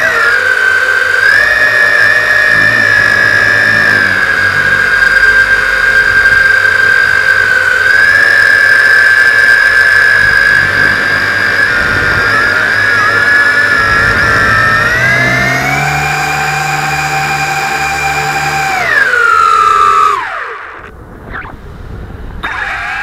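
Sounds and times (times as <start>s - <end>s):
drone motors whining: 0.0s - 23.0s.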